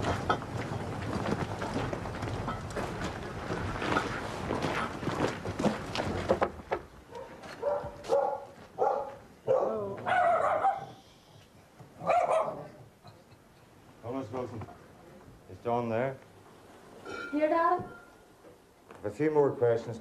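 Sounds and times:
footsteps on gravel: 0:00.0 - 0:09.3
dog barking: 0:07.1 - 0:10.9, 0:12.0 - 0:12.7.

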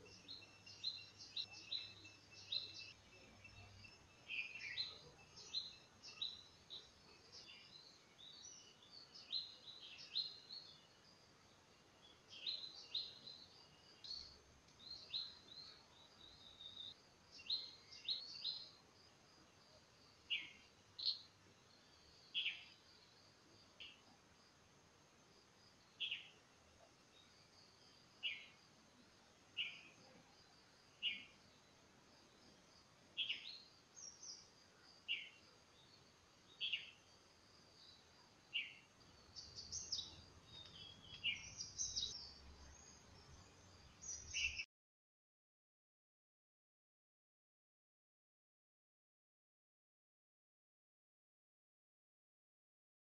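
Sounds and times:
birds chirping: 0:00.0 - 0:18.8, 0:19.9 - 0:24.2, 0:25.7 - 0:37.1, 0:37.7 - 0:44.7.

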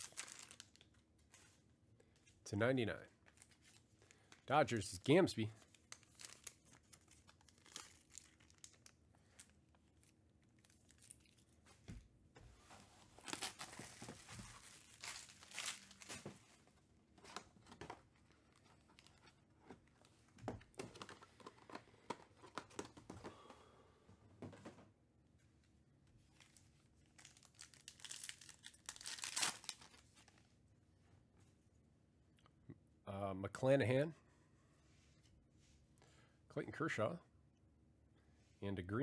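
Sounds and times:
plastic wrapping crinkling and tearing: 0:00.0 - 0:01.0, 0:05.6 - 0:11.5, 0:13.2 - 0:16.6, 0:26.4 - 0:30.5.

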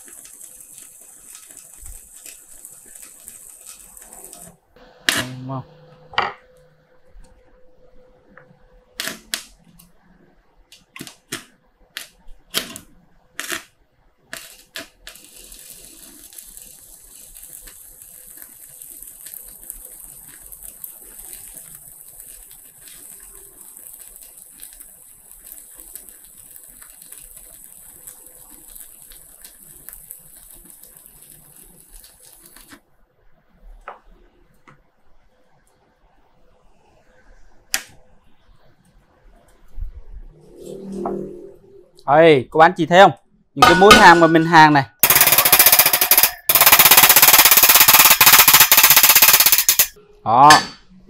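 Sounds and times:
welding arc crackling: 0:00.0 - 0:05.6, 0:09.0 - 0:09.7, 0:10.8 - 0:32.8, 0:43.7 - 0:50.0.

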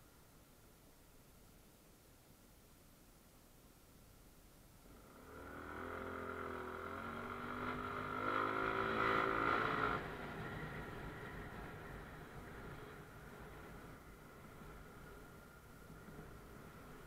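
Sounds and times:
motorcycle engine accelerating: 0:04.9 - 0:17.0.

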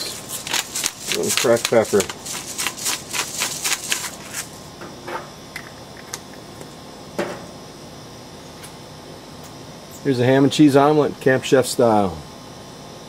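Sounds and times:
pepper grinder crunching: 0:00.0 - 0:04.7.

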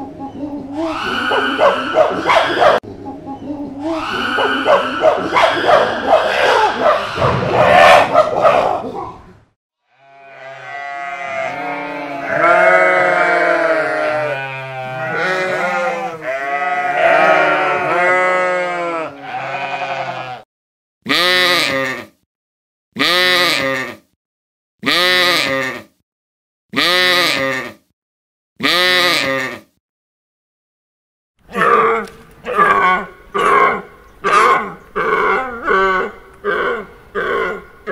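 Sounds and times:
sheep bleating: 0:09.9 - 0:20.5.

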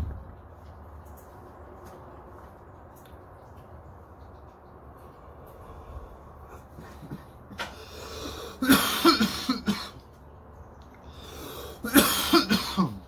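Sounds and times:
man coughing hard: 0:08.6 - 0:10.0, 0:11.8 - 0:13.0.

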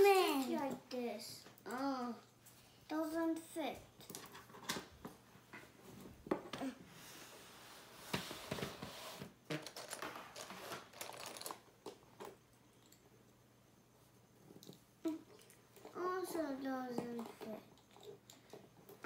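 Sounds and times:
plastic bricks clattering: 0:09.6 - 0:12.3.

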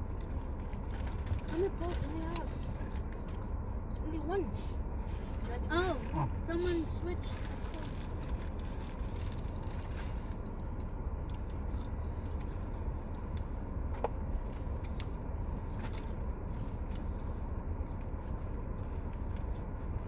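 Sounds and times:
people chewing food: 0:00.0 - 0:04.1, 0:05.0 - 0:20.0
low rumble inside car: 0:00.0 - 0:20.0
food wrappers crackling: 0:07.2 - 0:12.5.

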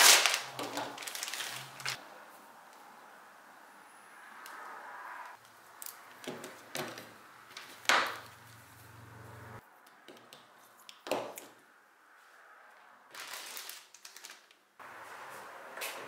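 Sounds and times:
cables knocking and rustling: 0:00.0 - 0:02.0, 0:06.1 - 0:08.4.

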